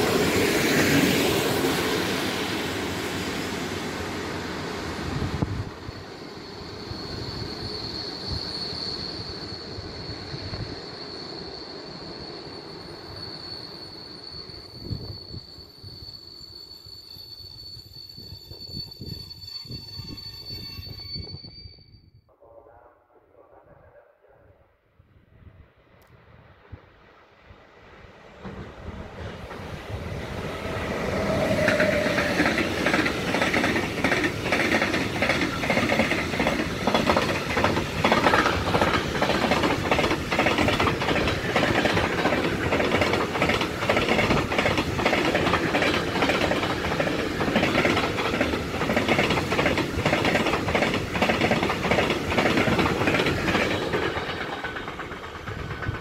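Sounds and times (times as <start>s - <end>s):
freight train wheels clattering: 30.6s - 56.0s.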